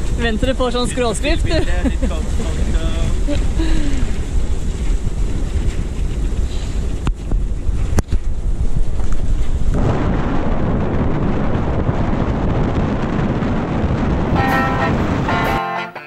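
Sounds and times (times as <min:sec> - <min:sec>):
rushing water: 0:00.0 - 0:06.2, 0:14.3 - 0:15.7
wind buffeting microphone: 0:00.0 - 0:15.6.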